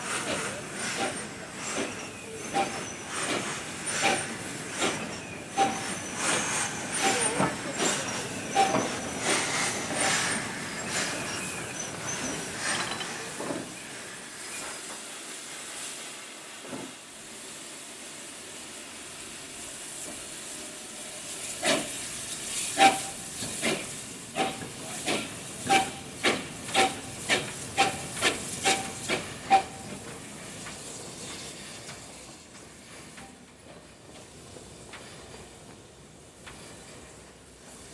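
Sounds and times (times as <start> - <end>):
locomotive steam hissing: 0.0 - 37.9
steam locomotive chuffing: 0.0 - 37.9.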